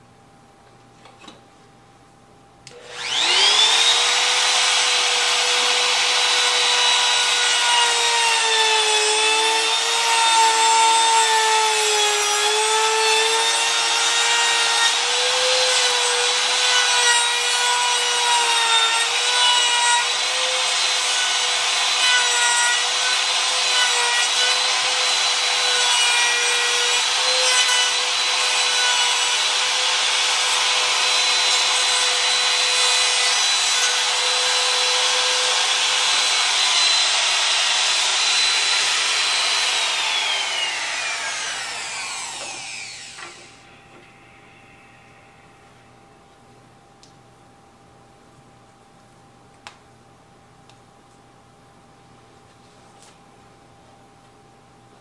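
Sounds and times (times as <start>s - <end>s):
router whining while cutting wood: 2.7s - 43.5s.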